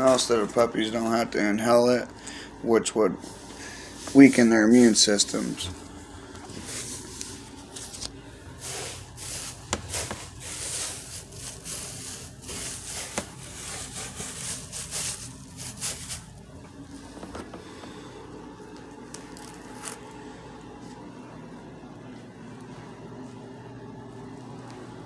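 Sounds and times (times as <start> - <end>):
wood chips rustling and scraping: 3.2 - 17.2, 19.1 - 20.1.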